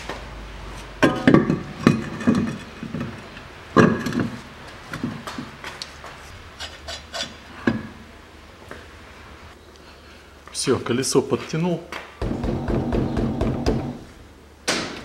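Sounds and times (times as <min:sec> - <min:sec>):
car wheel knocks and clunks: 0:12.2 - 0:14.0.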